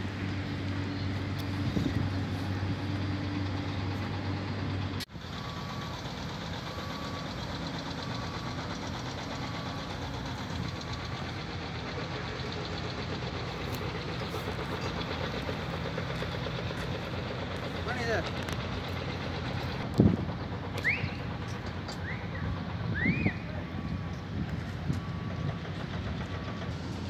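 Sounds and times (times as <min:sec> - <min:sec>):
construction vehicle engine running: 0:00.0 - 0:27.0
reversing alarm beeping: 0:05.2 - 0:16.2, 0:20.8 - 0:27.0.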